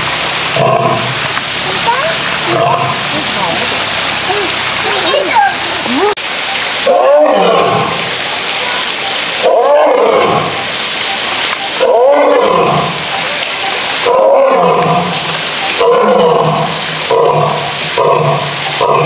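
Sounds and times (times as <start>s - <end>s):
lion roaring: 15.8s - 19.0s.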